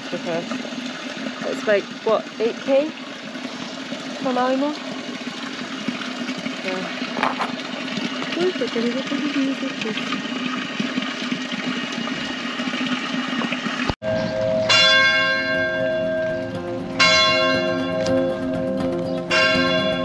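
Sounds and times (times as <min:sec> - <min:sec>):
water running into bottles: 0:00.0 - 0:14.0
church bell tolling: 0:14.0 - 0:20.0.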